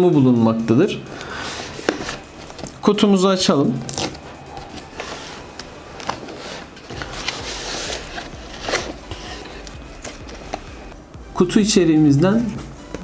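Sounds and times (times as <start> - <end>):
paper rustling: 1.2 - 2.8, 3.9 - 10.9
cardboard box being opened: 4.6 - 10.7.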